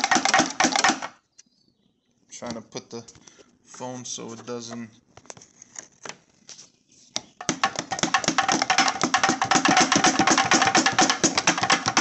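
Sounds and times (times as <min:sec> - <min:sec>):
rapid knocking on metal housing: 0:00.0 - 0:01.1, 0:07.4 - 0:12.0.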